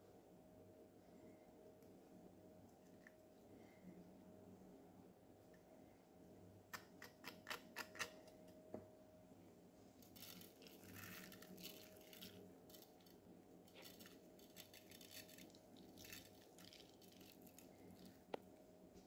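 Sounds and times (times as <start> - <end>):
faint steady hum: 0.0 - 19.0
soft rustles of rice grains: 9.9 - 19.0.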